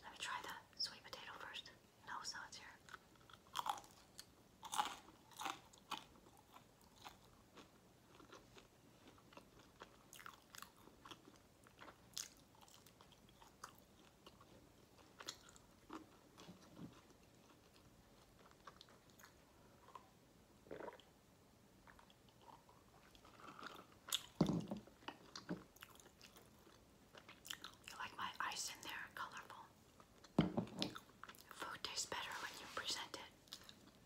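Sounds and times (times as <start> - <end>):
chewing and mouth sounds: 2.8 - 20.1, 21.8 - 28.0, 33.4 - 34.0
crunchy bites: 4.6 - 8.4
drink gulped: 20.6 - 21.1.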